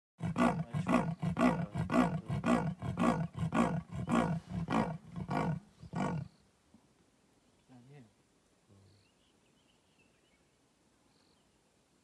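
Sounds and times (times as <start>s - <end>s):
leopard sawing call grunts: 0.2s - 6.3s.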